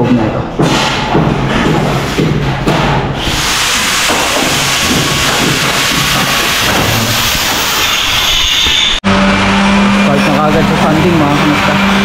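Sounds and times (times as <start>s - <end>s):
loud steady hiss: 3.2s - 8.4s.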